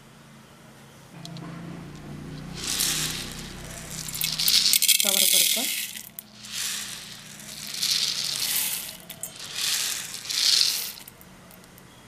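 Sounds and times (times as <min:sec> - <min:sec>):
lentils pouring into steel pot: 0:02.4 - 0:11.2.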